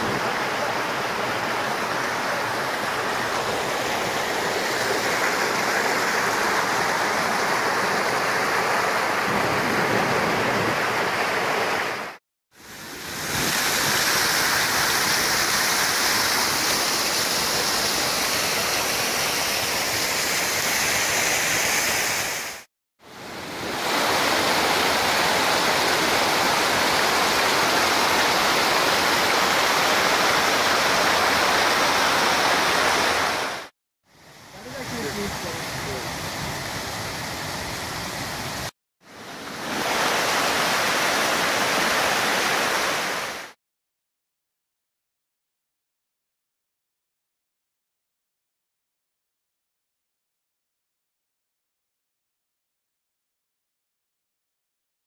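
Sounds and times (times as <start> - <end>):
waterfall roaring over rocks: 0.0 - 43.6.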